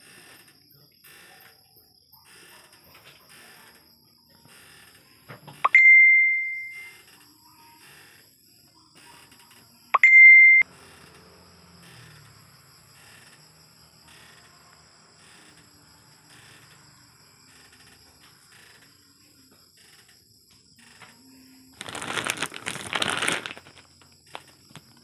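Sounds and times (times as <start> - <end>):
electronic beep: 5.6 - 7.0, 10.0 - 10.7.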